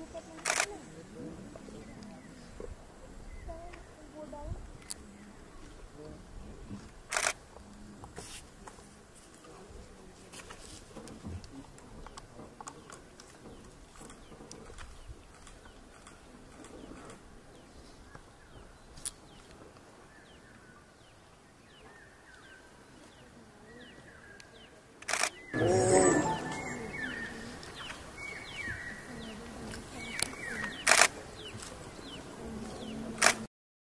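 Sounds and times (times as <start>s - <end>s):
faint falling chirps: 25.5s - 28.0s
tiger growling snarl: 25.6s - 27.4s
sharp clicks: 30.1s - 31.7s.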